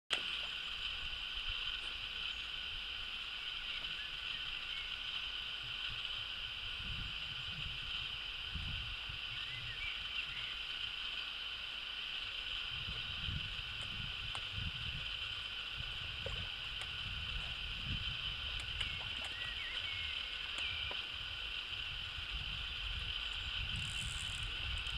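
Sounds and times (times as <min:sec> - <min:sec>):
steady high hiss: 0:00.1 - 0:24.9
wind buffeting microphone: 0:05.7 - 0:10.5, 0:12.6 - 0:24.9
faint bird chirps: 0:09.2 - 0:10.8, 0:18.6 - 0:21.2.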